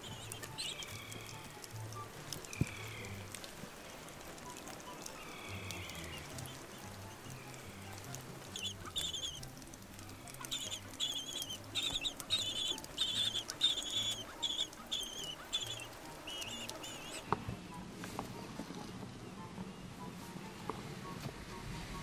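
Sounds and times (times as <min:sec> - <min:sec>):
penguin chicks peeping: 0:00.0 - 0:17.4.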